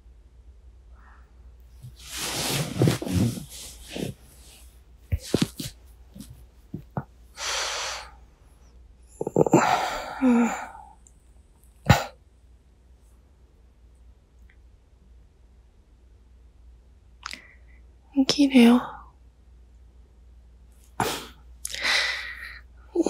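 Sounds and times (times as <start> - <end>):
bedding rustling: 1.8 - 7.2
sleepy breathing and sighs: 6.8 - 8.3, 9.1 - 11.0, 21.0 - 23.0.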